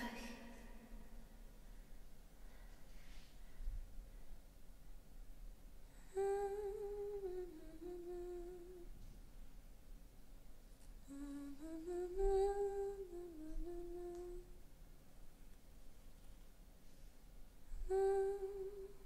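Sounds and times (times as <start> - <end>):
person humming a slow tune: 5.9 - 9.1, 11.0 - 14.6, 17.7 - 19.0.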